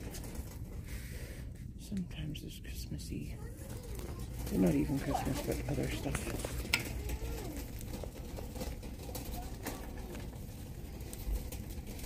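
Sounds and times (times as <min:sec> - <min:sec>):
steady low hum: 0:00.0 - 0:07.6
distant voices: 0:00.0 - 0:12.0.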